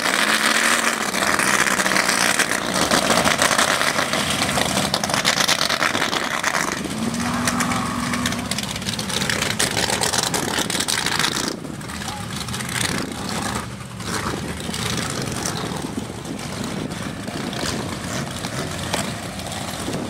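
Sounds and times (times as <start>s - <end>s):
truck engines running rough: 0.0s - 20.0s.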